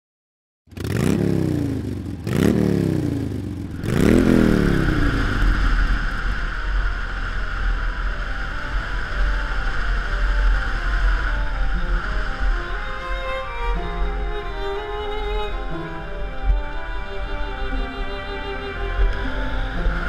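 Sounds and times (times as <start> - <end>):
motorcycle engine revving: 0.7 - 12.6
wind and road noise: 0.8 - 20.0.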